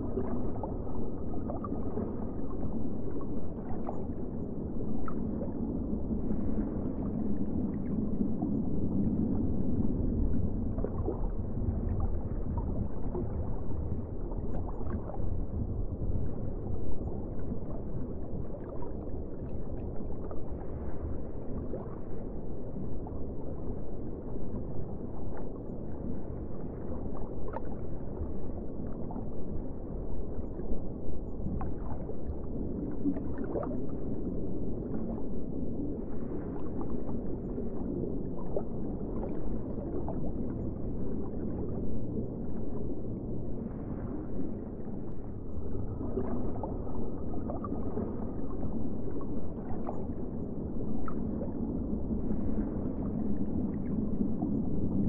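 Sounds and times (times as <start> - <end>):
low underwater rumble: 0.0 - 55.0.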